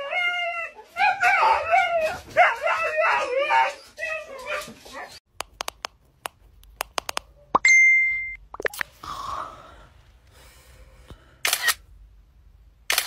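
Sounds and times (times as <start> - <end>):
sharp clicks: 5.4 - 7.3.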